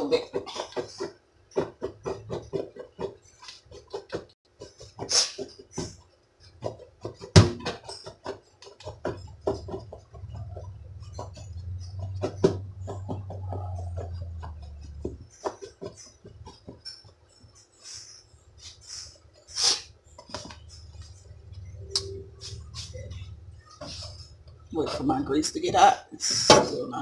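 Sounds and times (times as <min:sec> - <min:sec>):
low hum: 0:09.1 - 0:15.3, 0:20.6 - 0:24.8.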